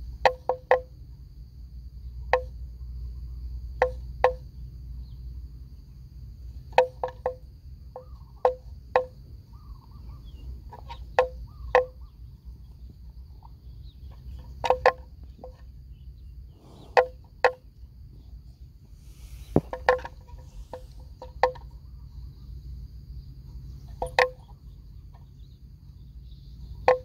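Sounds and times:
high insect drone: 0.0 - 27.0
sharp hollow knocks: 3.8 - 4.4, 6.7 - 9.2, 10.8 - 12.1, 19.2 - 21.7, 26.8 - 27.0.

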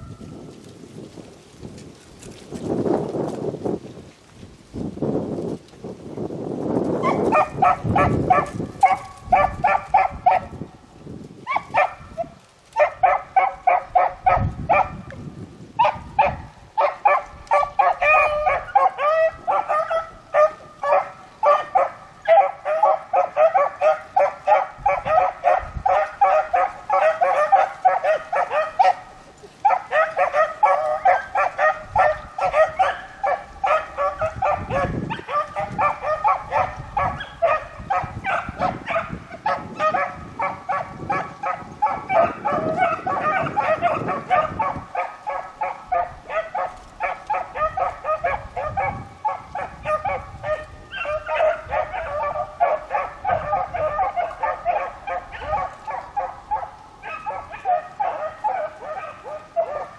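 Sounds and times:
beagles baying: 15.8 - 59.9.

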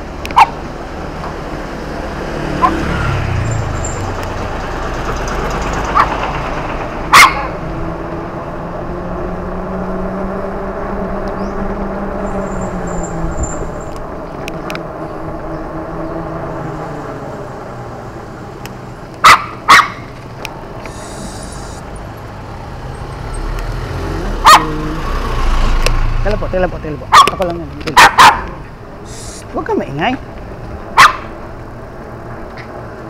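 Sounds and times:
vehicle engine hum: 0.0 - 33.0
small dog barking: 0.4 - 0.6, 7.1 - 7.6, 19.2 - 20.0, 24.4 - 24.8, 27.1 - 28.6, 31.0 - 31.3.

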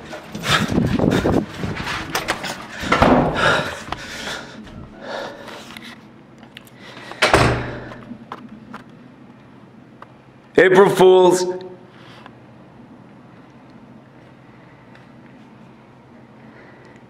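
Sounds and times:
heavy thump: 2.8 - 3.7.

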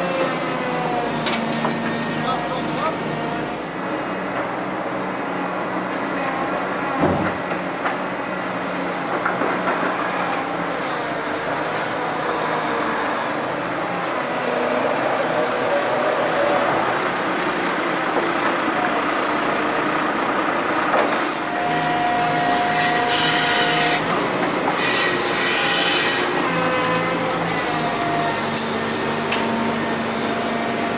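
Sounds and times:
excavator diesel engine: 0.0 - 30.9
metallic squeal and scraping: 21.6 - 24.1, 24.7 - 30.8.

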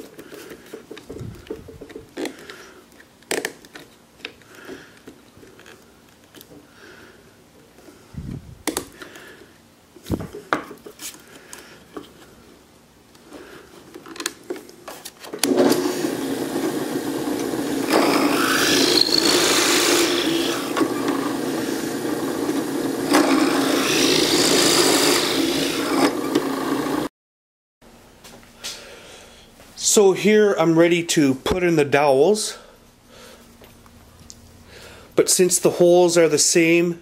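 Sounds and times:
drill bit boring into wood: 15.4 - 27.1
drill press humming: 15.4 - 27.1.

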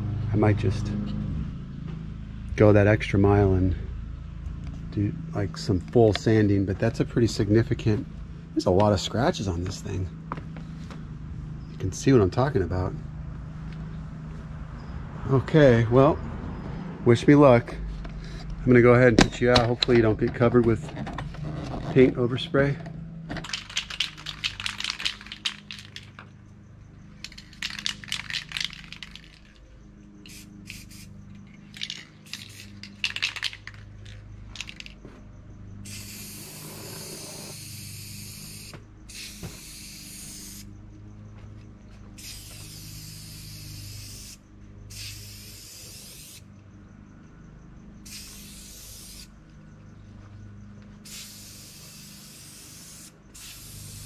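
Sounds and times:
spray can ball rattling: 23.4 - 26.2, 27.2 - 29.6, 30.2 - 35.0, 35.9 - 40.6, 42.2 - 46.4, 48.0 - 49.3, 51.0 - 54.0
spray can hissing: 23.5 - 26.1, 27.2 - 29.5, 30.2 - 33.9, 35.8 - 40.7, 42.2 - 46.4, 48.0 - 49.3, 51.0 - 54.0.

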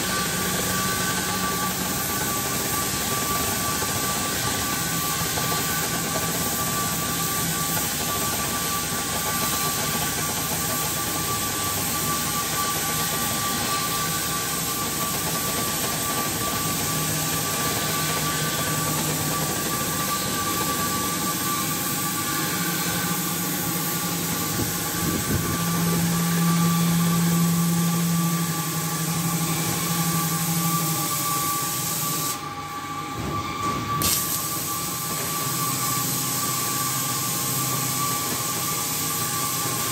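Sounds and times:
cutting torch hissing: 0.1 - 32.5, 34.0 - 39.9
steady high tone: 13.6 - 31.8.

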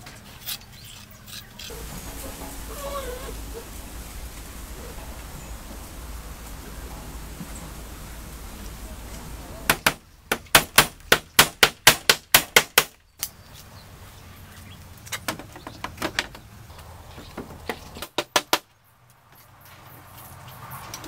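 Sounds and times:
hammer knocking on bamboo: 9.6 - 13.0.

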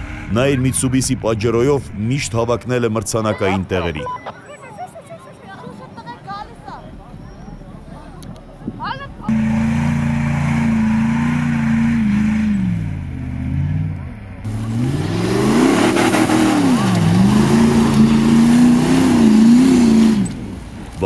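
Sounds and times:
truck engine revving hard: 9.3 - 20.7.

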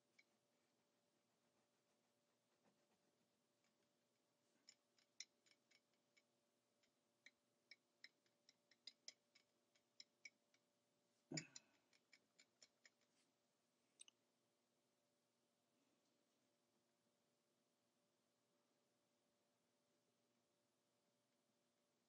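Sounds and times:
pencil tapping on paper: 4.5 - 10.7, 11.3 - 13.2.

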